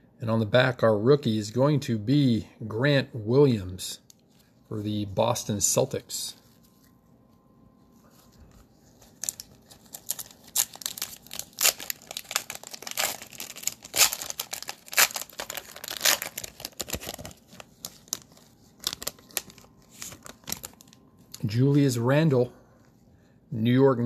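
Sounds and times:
cellophane wrapper crinkling: 8.0s - 21.5s.

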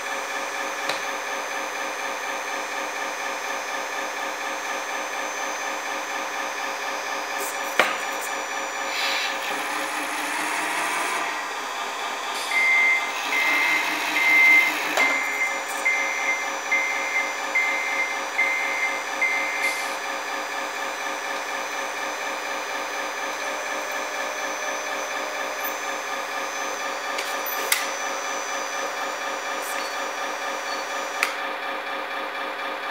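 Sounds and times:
diesel engine idling: 0.0s - 32.9s
reversing beeps: 12.4s - 20.0s, 29.6s - 31.3s.

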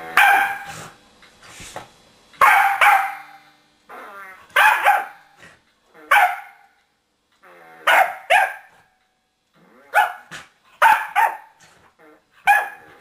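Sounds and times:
dog barking: 0.2s - 0.7s, 2.4s - 3.4s, 4.6s - 5.2s, 6.1s - 6.6s, 7.9s - 8.7s, 9.9s - 11.6s, 12.4s - 12.9s.

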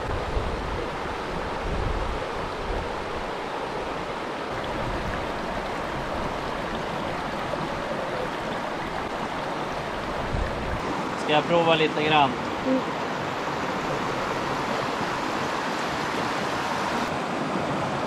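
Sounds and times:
wind rumble on microphone: 0.0s - 11.0s
mountain stream rushing: 0.0s - 18.0s.

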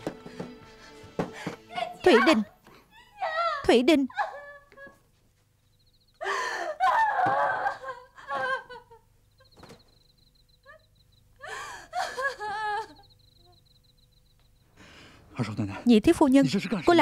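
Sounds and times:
woman sobbing and crying out: 1.2s - 5.1s, 6.2s - 9.6s, 10.6s - 13.6s.

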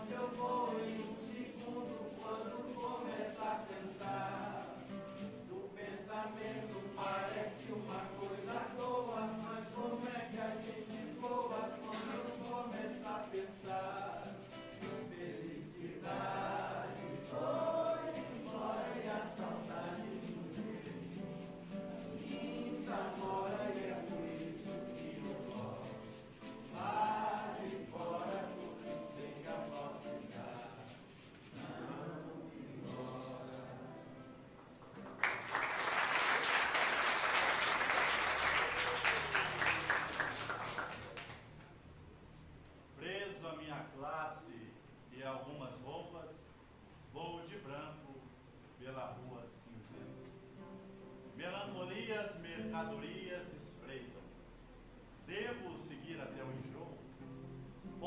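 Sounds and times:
voices singing together: 0.0s - 34.6s
acoustic guitar: 0.0s - 42.5s, 49.7s - 58.0s
audience applauding: 34.6s - 41.6s.

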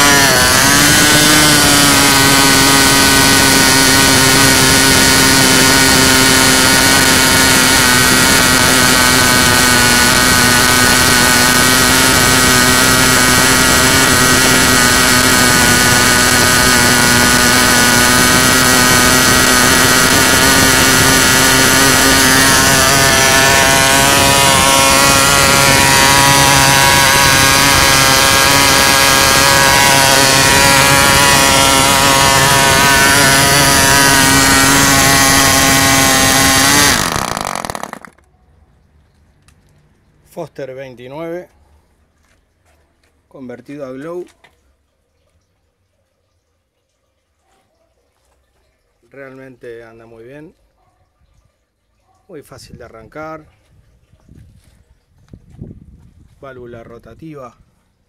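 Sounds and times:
model aircraft engine buzzing: 0.0s - 38.2s.

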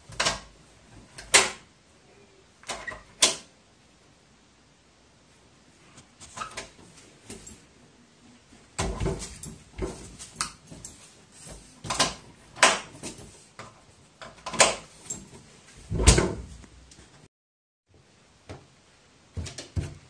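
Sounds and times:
door handle and latch rattling: 11.8s - 13.3s, 14.2s - 16.5s.

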